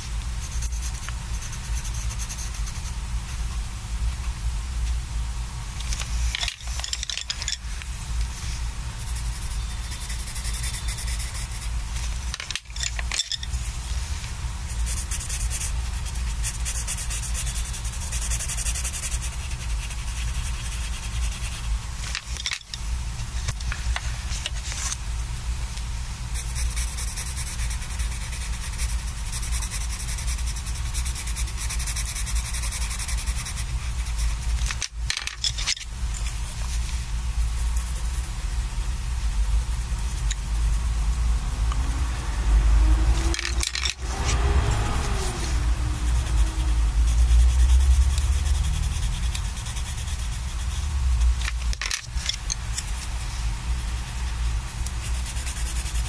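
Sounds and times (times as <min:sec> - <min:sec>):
pencil scratching on paper: 0:00.4 - 0:03.0, 0:09.0 - 0:13.8, 0:14.7 - 0:22.3, 0:26.4 - 0:34.9, 0:43.2 - 0:56.0.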